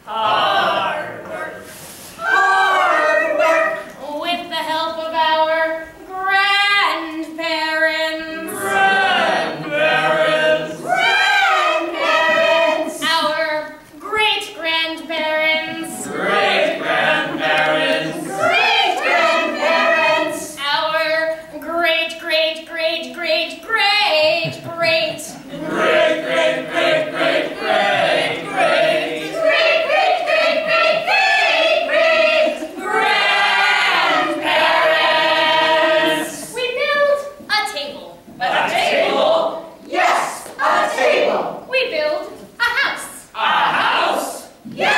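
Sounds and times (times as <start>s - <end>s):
chorus of voices singing: 0.0s - 3.9s, 8.0s - 13.6s, 15.1s - 20.7s, 25.2s - 36.6s, 38.4s - 41.7s, 43.4s - 44.9s.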